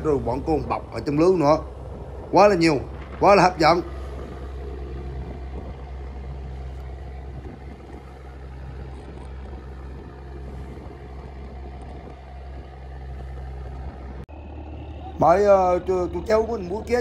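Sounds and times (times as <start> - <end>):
boat engine droning: 0.0 - 17.0.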